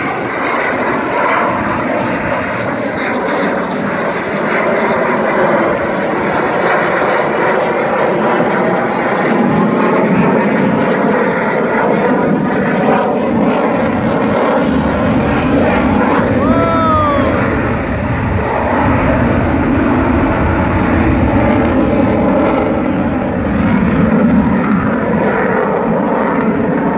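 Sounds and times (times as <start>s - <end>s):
jet fighter engine roar: 0.0s - 26.9s.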